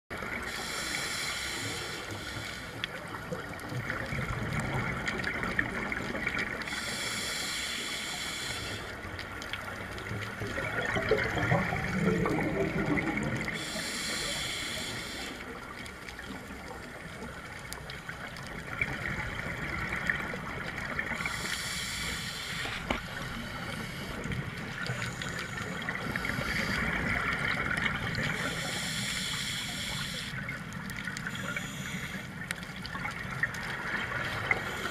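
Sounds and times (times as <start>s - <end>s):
regulator inhale hiss: 0.4s - 3.0s, 6.6s - 9.2s, 13.4s - 15.6s, 21.2s - 27.1s, 28.2s - 30.4s, 31.3s - 32.5s, 34.2s - 34.9s
gurgling exhaled bubbles: 9.6s - 13.9s, 22.6s - 28.9s.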